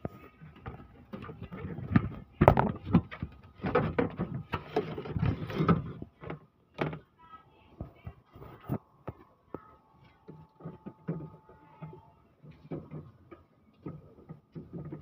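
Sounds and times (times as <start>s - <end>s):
knocks and clatter of handling: 0.0s - 7.1s, 10.1s - 15.0s.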